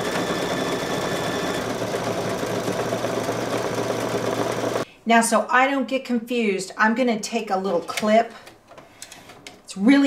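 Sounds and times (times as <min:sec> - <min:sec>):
embroidery machine stitching: 0:00.0 - 0:04.8.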